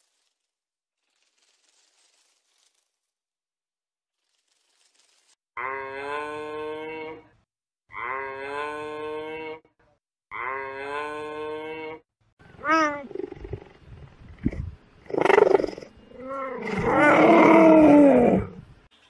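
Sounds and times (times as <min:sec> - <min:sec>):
cheetah growl-like calls: 0:12.6 - 0:13.8, 0:14.4 - 0:18.7.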